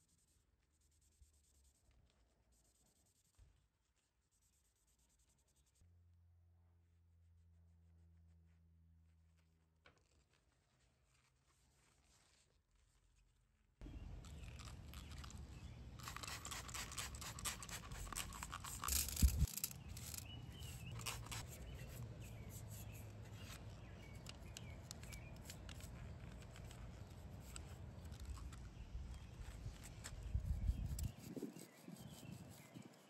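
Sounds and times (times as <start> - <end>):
brush scrubbing typewriter mechanism: 16.0 - 21.4.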